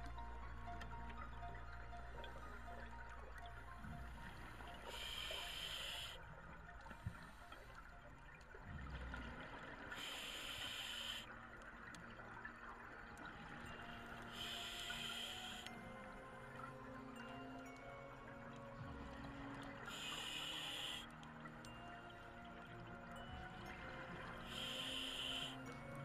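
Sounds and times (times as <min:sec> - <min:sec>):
hissing regulator inhalations: 0:03.9 - 0:06.2, 0:09.9 - 0:11.3, 0:14.3 - 0:15.8, 0:19.9 - 0:21.1, 0:24.5 - 0:25.8.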